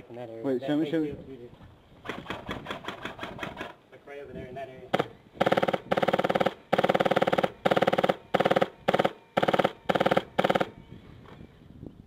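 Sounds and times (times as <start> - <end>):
airsoft gun firing bursts: 4.9 - 10.8.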